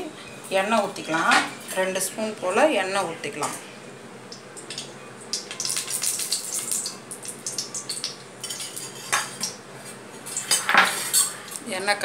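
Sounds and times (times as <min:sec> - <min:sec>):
cooking oil crackling and spitting: 0:04.2 - 0:11.6.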